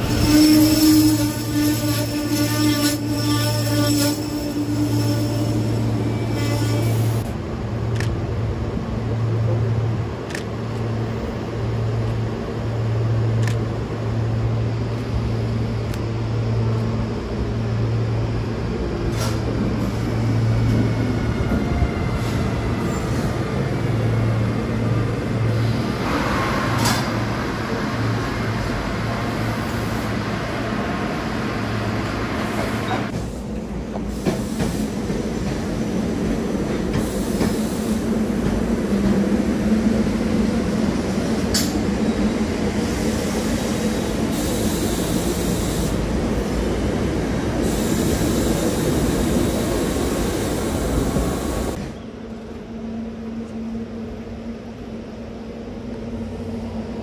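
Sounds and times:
electric train passing: 0:00.0 - 0:57.0
train wheels clicking on rails: 0:25.5 - 0:27.4, 0:31.9 - 0:39.7, 0:41.1 - 0:42.1.

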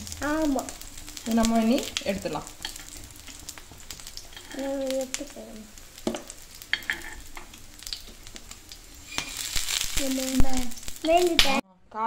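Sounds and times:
food sizzling in oil: 0:00.0 - 0:11.6
metal spoon scraping pan: 0:02.6 - 0:03.4, 0:04.2 - 0:04.6, 0:06.6 - 0:07.6.

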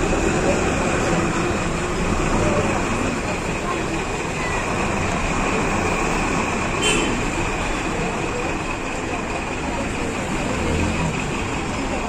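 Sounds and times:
street traffic rumble: 0:00.0 - 0:12.0
vehicle engines running: 0:00.0 - 0:12.0.

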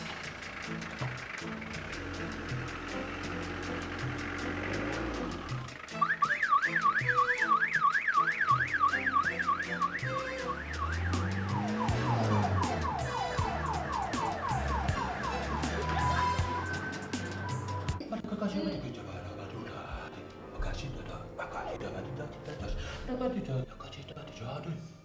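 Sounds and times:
background music with a beat: 0:00.0 - 0:18.0
electronic police siren wailing: 0:05.9 - 0:18.0.

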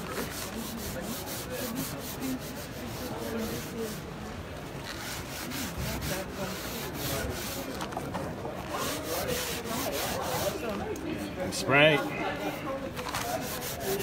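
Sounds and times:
scrub pad scratching wet boards: 0:00.0 - 0:04.1, 0:04.9 - 0:08.0, 0:08.7 - 0:10.8, 0:13.0 - 0:14.0.

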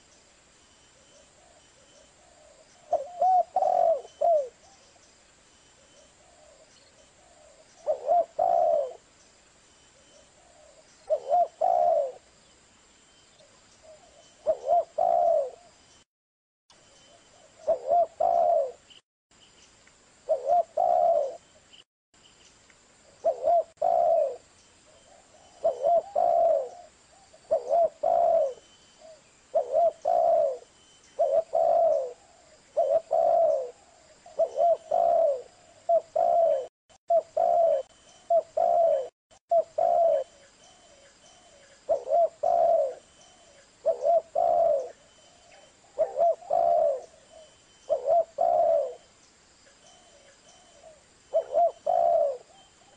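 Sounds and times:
dove cooing: 0:02.2 - 0:04.9, 0:06.1 - 0:09.1, 0:10.4 - 0:12.3, 0:13.8 - 0:15.7, 0:17.4 - 0:18.9, 0:20.3 - 0:21.4, 0:23.2 - 0:49.1, 0:49.8 - 0:52.9.

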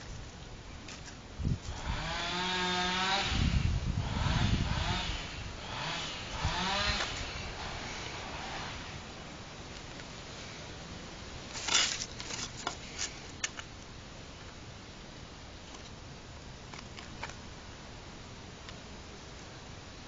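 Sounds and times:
plastic pieces clicking and scraping: 0:11.5 - 0:13.7.

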